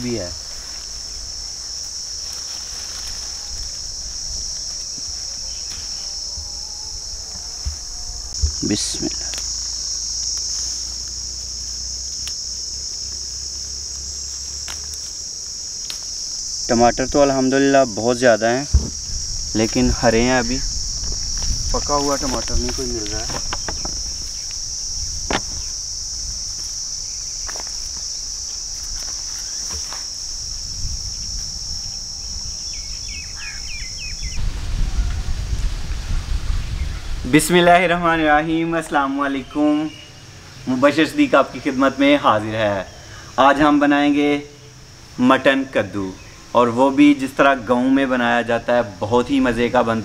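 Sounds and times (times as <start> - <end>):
high-pitched insect chorus: 0.0 - 50.0
leaves rustling: 0.0 - 50.0
low wind rumble: 0.3 - 9.0, 15.3 - 29.0, 30.2 - 39.0
bird chirps: 32.7 - 34.4.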